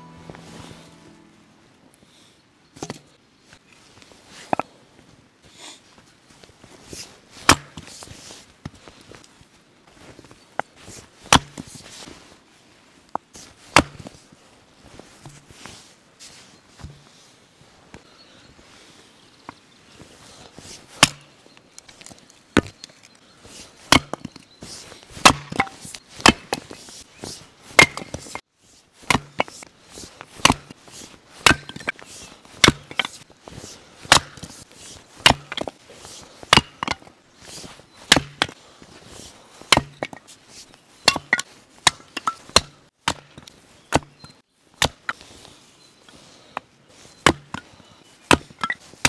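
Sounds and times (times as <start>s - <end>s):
axe chopping firewood: 7.4s - 8.0s, 11.3s - 11.8s, 13.7s - 14.1s, 21.0s - 21.3s, 22.6s - 22.8s, 23.9s - 24.4s, 25.2s - 26.8s, 27.8s - 28.4s, 29.0s - 29.7s, 30.4s - 30.8s, 31.4s - 32.0s, 32.6s - 33.2s, 34.0s - 34.6s, 35.2s - 35.8s, 36.4s - 37.1s, 38.0s - 38.6s, 39.7s - 40.2s, 41.0s - 45.2s, 47.2s - 47.6s, 48.3s - 49.0s.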